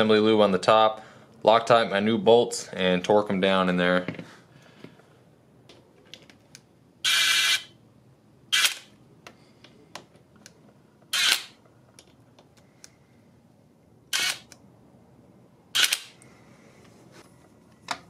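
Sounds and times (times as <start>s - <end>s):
sharp mechanical noises: 7.0s - 7.7s, 8.5s - 9.0s, 11.1s - 11.6s, 14.1s - 14.6s, 15.7s - 16.2s.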